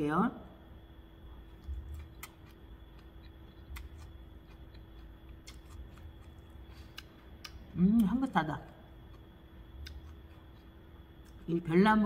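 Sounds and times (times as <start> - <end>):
person chewing: 1.3 - 8.1, 8.9 - 11.5.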